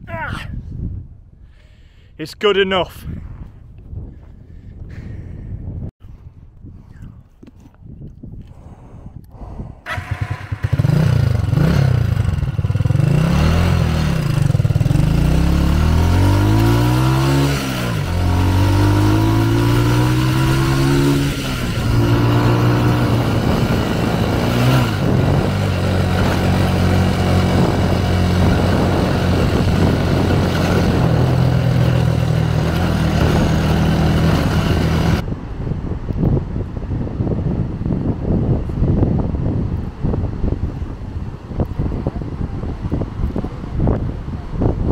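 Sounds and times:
motorcycle engine accelerating: 0:09.8 - 0:35.3.

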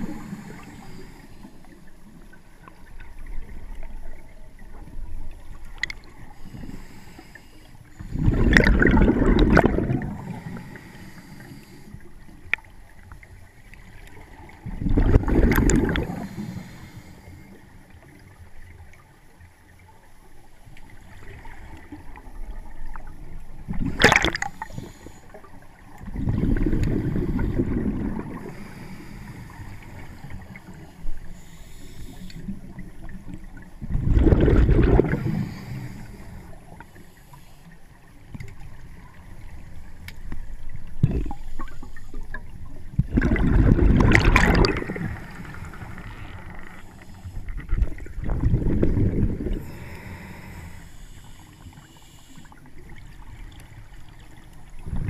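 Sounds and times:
quiet hiss: 0:00.0 - 0:55.0
gurgling underwater bubbles: 0:08.0 - 0:11.6, 0:12.4 - 0:16.7, 0:20.8 - 0:31.3, 0:32.4 - 0:36.9, 0:40.7 - 0:50.5, 0:52.7 - 0:55.0.

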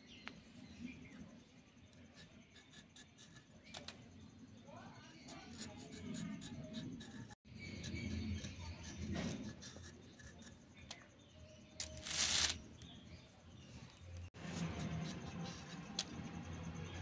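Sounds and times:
mango skin scraping on blade: 0:11.8 - 0:12.6, 0:14.4 - 0:16.4.

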